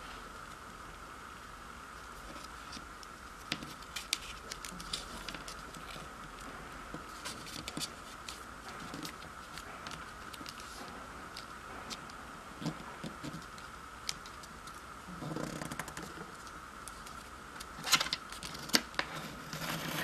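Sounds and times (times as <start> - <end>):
steady background hum: 0.0 - 20.0
paper rustling: 3.4 - 12.0.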